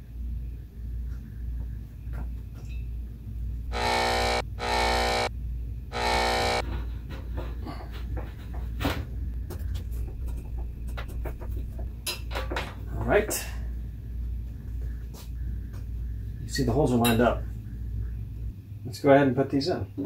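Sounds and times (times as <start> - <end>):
low steady hum: 0.0 - 6.6
harsh electronic buzzes: 3.7 - 5.3, 5.9 - 6.6.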